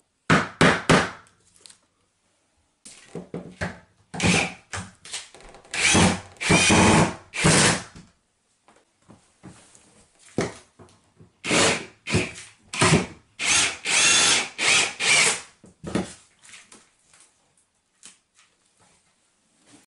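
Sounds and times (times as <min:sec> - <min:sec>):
cordless drill whining in bursts: 0:13.4 - 0:15.4.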